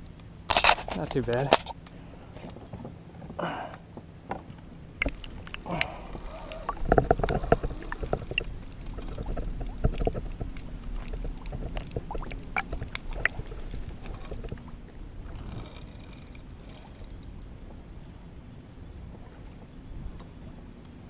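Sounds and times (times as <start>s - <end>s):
muffled underwater sloshing: 4.3s - 17.9s.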